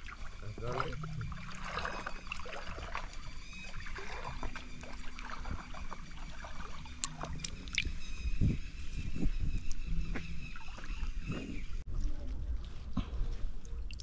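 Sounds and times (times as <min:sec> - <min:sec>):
hand sloshing in stream water: 0:00.0 - 0:08.0
water splash: 0:00.0 - 0:08.0.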